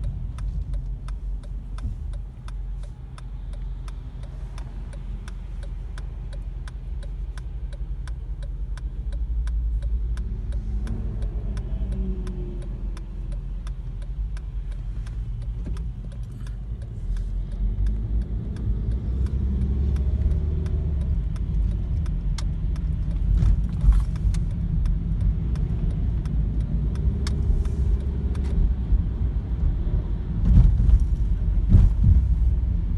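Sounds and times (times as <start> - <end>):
fast even ticking: 0.0 - 29.1
car engine and tyre rumble: 0.0 - 32.9
car bumps: 30.4 - 32.5.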